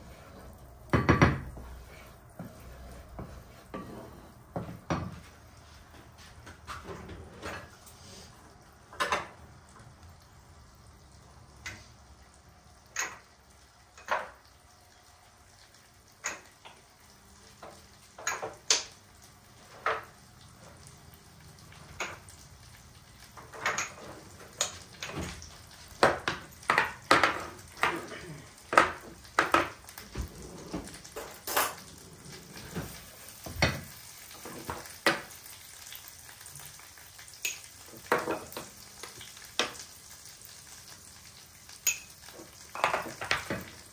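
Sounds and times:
food sizzling in a pan: 0.0 - 43.9
kitchenware clicks and clinks: 12.9 - 13.3, 14.0 - 14.4, 16.2 - 16.7, 18.2 - 18.9, 23.4 - 28.0, 31.1 - 31.9, 37.4 - 38.7, 41.8 - 43.7.

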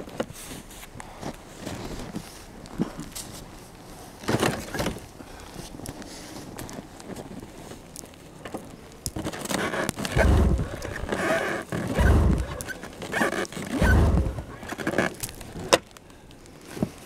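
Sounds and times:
recoil starter rope yanks: 9.3 - 15.4
engine turning over: 9.6 - 15.1.

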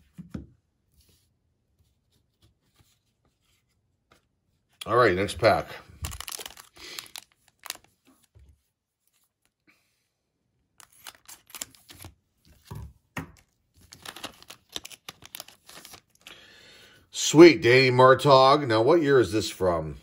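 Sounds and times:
plastic wrapper crinkling and tearing: 5.4 - 8.3, 10.8 - 12.6, 13.4 - 16.4.

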